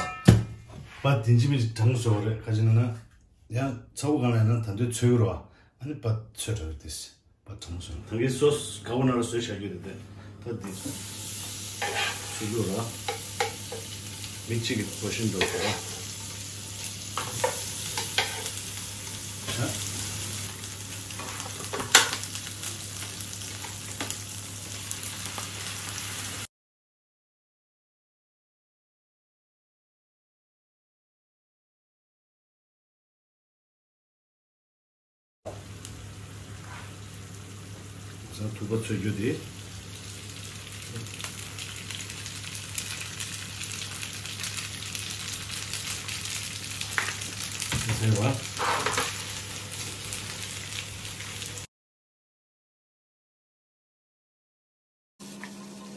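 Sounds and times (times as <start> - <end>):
food sizzling in frying pan: 10.6 - 26.5, 35.5 - 51.7
metal spatula scraping pan: 11.8 - 13.8, 15.3 - 16.1, 48.5 - 49.1.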